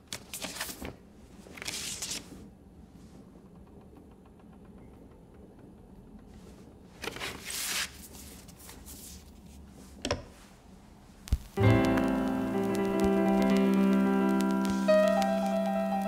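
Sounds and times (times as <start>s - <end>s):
cardboard sleeve rustling: 7.0s - 9.6s.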